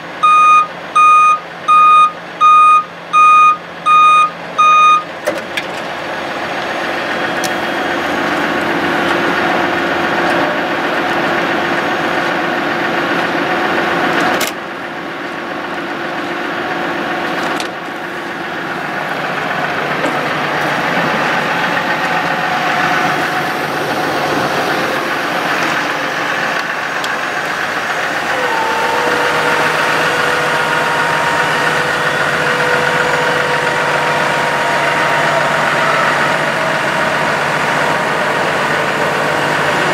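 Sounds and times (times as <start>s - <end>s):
diesel engine idling: 0.0s - 39.9s
steady high whine: 18.0s - 39.9s.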